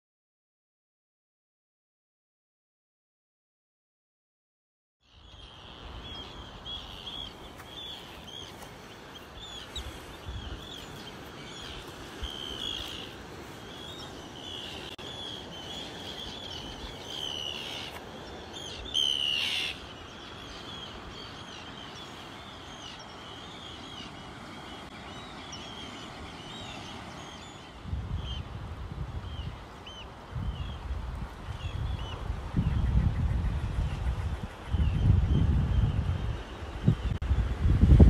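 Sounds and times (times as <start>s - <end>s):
birds chirping: 5.1s - 28.5s
wind buffeting microphone: 5.7s - 17.1s, 27.8s - 38.0s.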